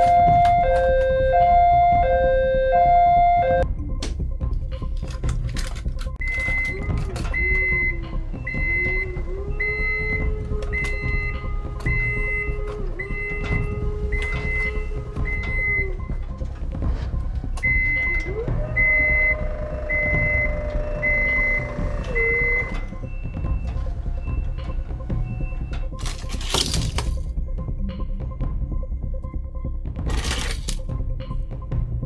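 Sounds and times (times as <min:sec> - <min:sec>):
electronic warning beep: 0:00.0 - 0:03.6, 0:06.2 - 0:16.4, 0:17.0 - 0:25.8.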